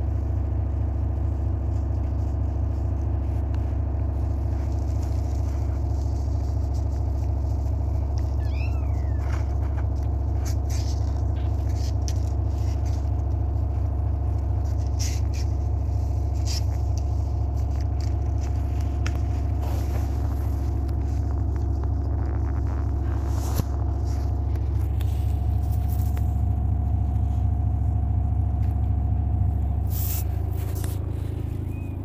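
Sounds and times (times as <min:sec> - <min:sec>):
steady low rumble: 0:00.0 - 0:32.0
blanket rustling: 0:01.6 - 0:27.6, 0:29.7 - 0:32.0
kitten claws scrabbling on cardboard: 0:01.8 - 0:26.5.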